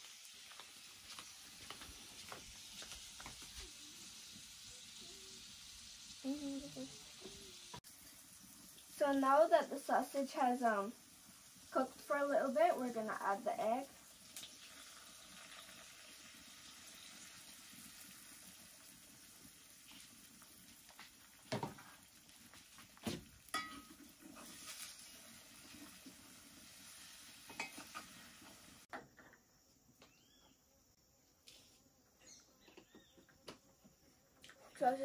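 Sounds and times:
food sizzling in a wok: 0.0 - 28.9
faint chirps: 3.6 - 7.8, 30.0 - 31.0, 32.1 - 34.8
metal spoon scraping a pan: 23.6 - 25.1.

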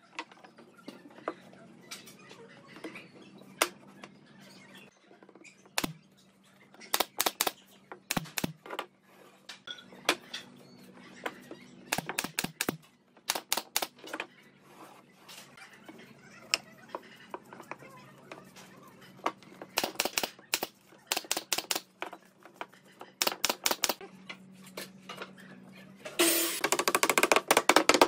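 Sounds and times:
wooden pieces knocking on wood: 26.6 - 28.0.

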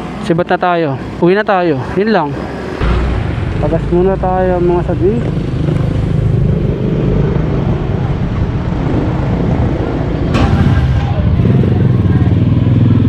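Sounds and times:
sharp knock: 2.8 - 6.0.

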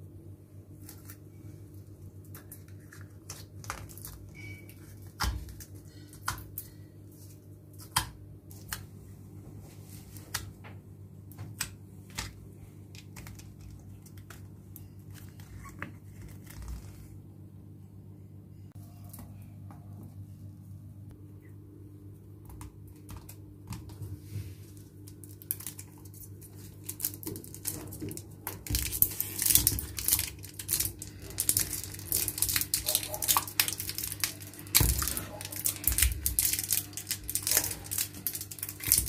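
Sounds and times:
steady low hum: 0.0 - 39.0
slime squished by fingers: 25.1 - 39.0.

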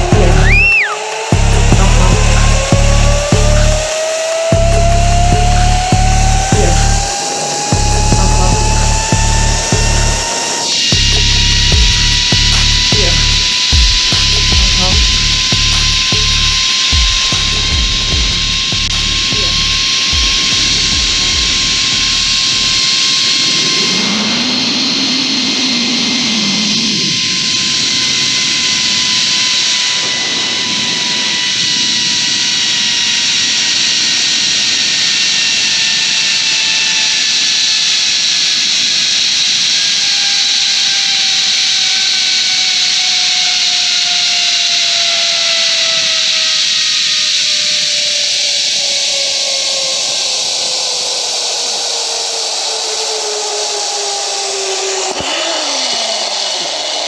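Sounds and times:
wind rushing: 0.0 - 33.1
zip-line pulleys whining on cable: 0.0 - 57.0.

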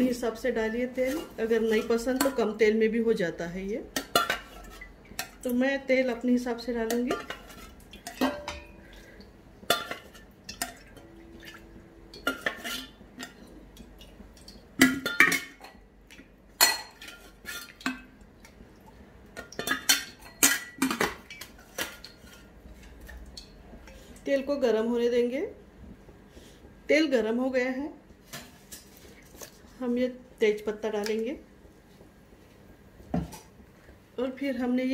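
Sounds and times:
metal utensils and pots clinking: 0.0 - 2.7, 3.9 - 5.6, 6.7 - 15.8, 16.6 - 18.1, 19.4 - 24.0.

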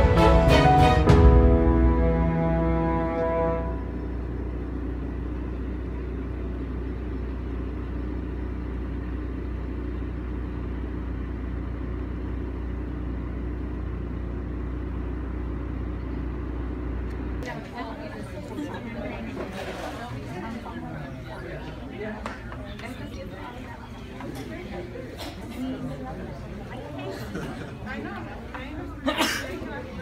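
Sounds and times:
music: 0.0 - 3.9
car road noise rumble: 3.2 - 17.5.

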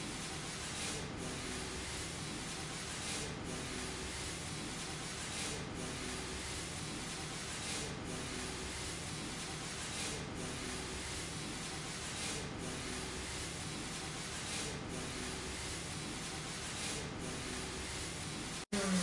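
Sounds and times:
fogging machine hissing: 5.2 - 19.0.

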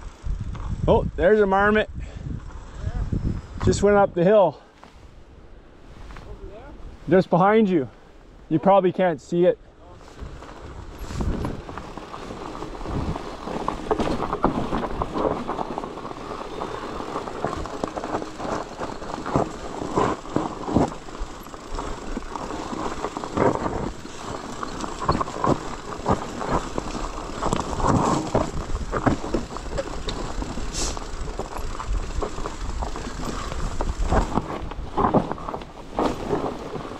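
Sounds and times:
bicycle rumbling over rough trail: 0.0 - 8.5, 9.8 - 36.9
bicycle knocks and rattles: 10.2 - 36.9.

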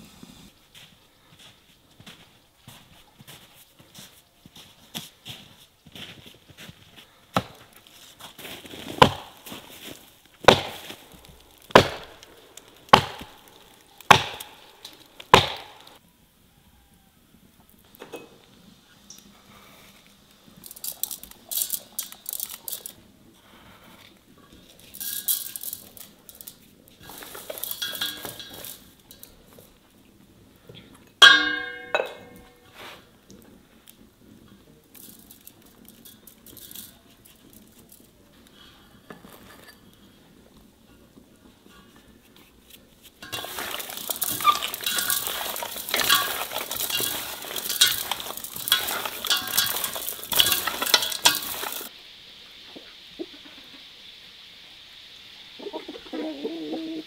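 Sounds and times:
spice sprinkling rustles: 0.7 - 16.0, 18.5 - 23.8, 24.4 - 29.8, 34.9 - 40.1, 41.7 - 51.9
crockery clink: 18.0 - 18.4, 27.6 - 29.2, 31.2 - 32.6, 43.2 - 51.9.

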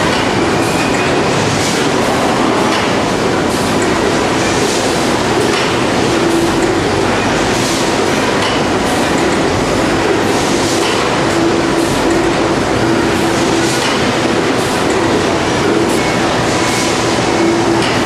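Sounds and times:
machinery running noise: 0.0 - 18.0.

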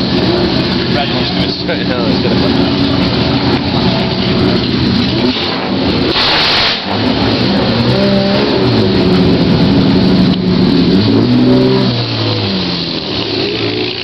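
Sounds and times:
race car engines revving: 0.0 - 14.0
short rushing noise: 5.2 - 7.1.

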